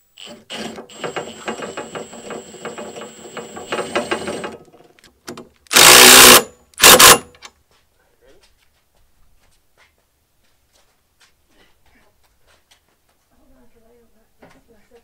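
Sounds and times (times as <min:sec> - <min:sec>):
impact driver rattle and whine: 0:00.2 - 0:04.7, 0:05.7 - 0:07.4
loud impact hammering bursts: 0:05.7 - 0:07.3.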